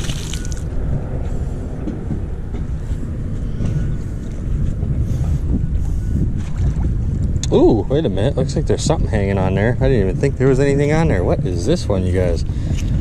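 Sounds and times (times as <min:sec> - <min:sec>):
water splash: 0:00.0 - 0:00.7
wind buffeting microphone: 0:00.0 - 0:13.0.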